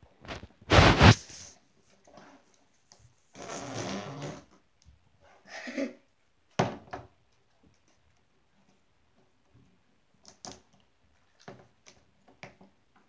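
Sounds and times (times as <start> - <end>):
rustling: 0.1 - 4.0.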